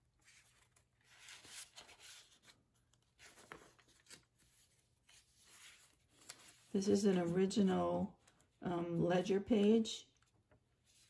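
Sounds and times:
paper pages rustling: 0.0s - 7.6s, 10.2s - 11.0s.

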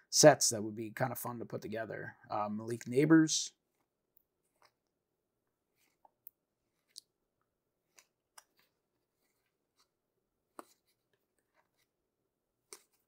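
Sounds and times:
trading cards rubbing: 5.7s - 7.0s.

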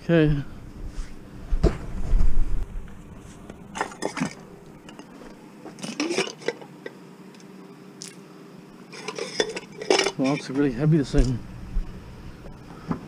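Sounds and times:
metal pot lid clinking: 9.0s - 10.4s.

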